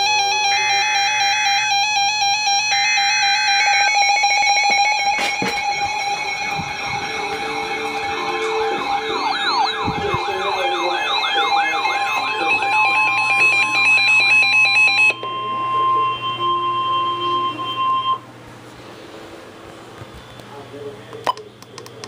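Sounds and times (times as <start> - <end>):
warbling siren-like alarm: 0.0 - 18.3
steady high warning tone: 0.0 - 18.4
rapid beeping: 1.3 - 18.2
low hum: 5.5 - 15.2.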